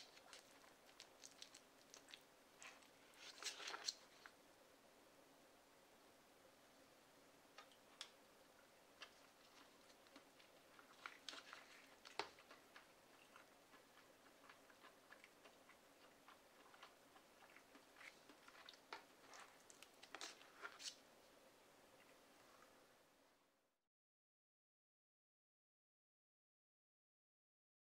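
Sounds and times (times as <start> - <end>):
person chewing: 0.0 - 4.4, 7.6 - 21.0.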